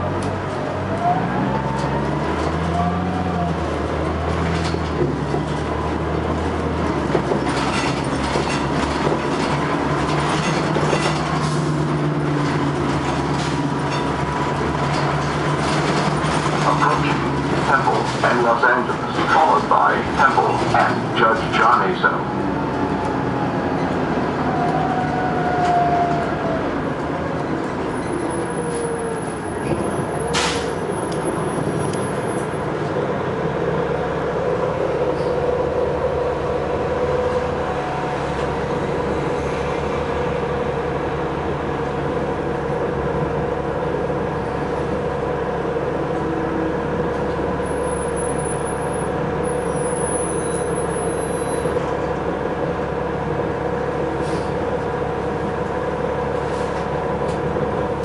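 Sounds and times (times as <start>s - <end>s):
bus engine droning with whine: 0.0s - 58.0s.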